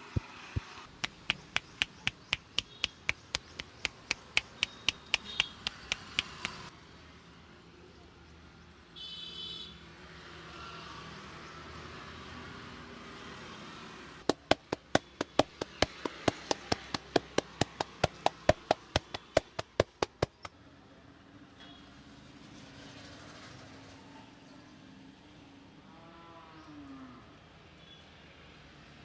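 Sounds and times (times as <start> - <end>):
hands slapping a back: 0.1 - 6.6, 14.3 - 20.5.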